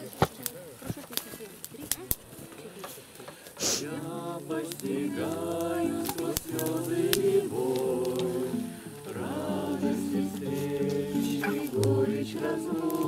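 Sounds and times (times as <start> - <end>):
acoustic guitar: 2.0 - 13.0
group of people singing: 3.7 - 13.0.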